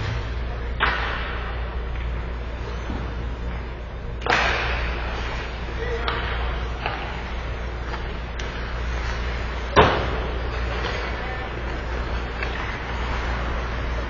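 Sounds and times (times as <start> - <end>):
hockey sticks and puck clacking: 0.0 - 14.0
steady low hum: 0.0 - 14.0.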